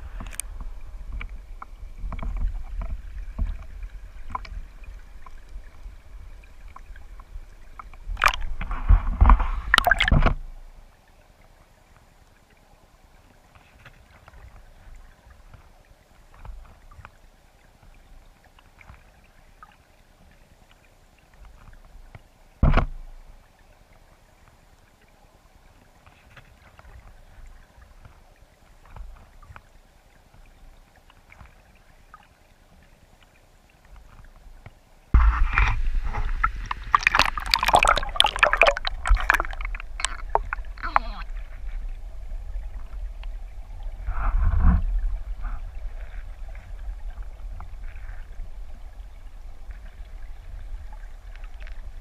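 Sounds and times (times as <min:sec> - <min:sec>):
churning bubbly water rush: 0:00.0 - 0:10.9, 0:33.8 - 0:52.0
underwater ticking and trickling: 0:00.0 - 0:52.0
knock: 0:22.6 - 0:23.0.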